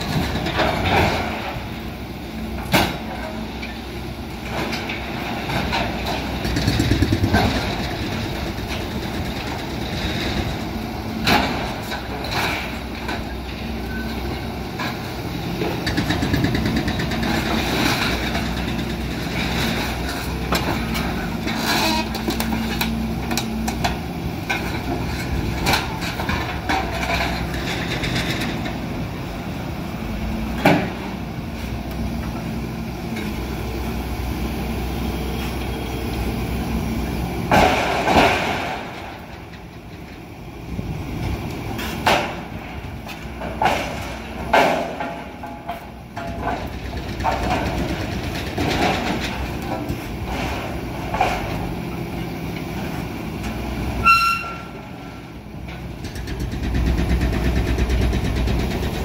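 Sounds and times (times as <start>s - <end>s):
excavator diesel engine running: 0.0s - 59.0s
steel clanks and scrapes: 15.6s - 22.9s.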